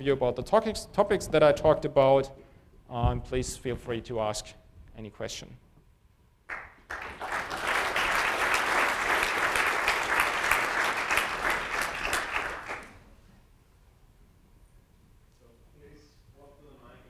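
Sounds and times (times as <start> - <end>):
audience applauding: 6.5 - 13.1.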